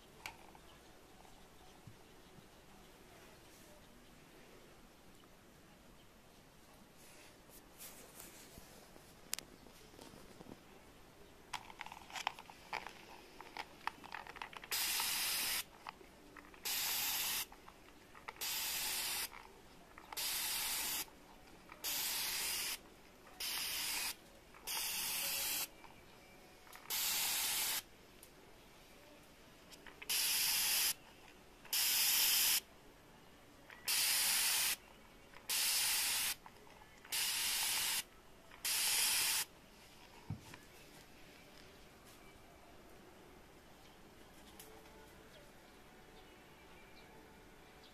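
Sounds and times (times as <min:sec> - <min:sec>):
spray bottle spraying mist: 0:14.7 - 0:15.7, 0:16.6 - 0:17.5, 0:18.4 - 0:19.4, 0:20.2 - 0:21.1, 0:21.8 - 0:22.8, 0:23.4 - 0:25.7, 0:26.9 - 0:27.9, 0:30.0 - 0:31.0, 0:31.7 - 0:32.6, 0:33.9 - 0:34.8, 0:35.5 - 0:36.4, 0:37.1 - 0:39.5.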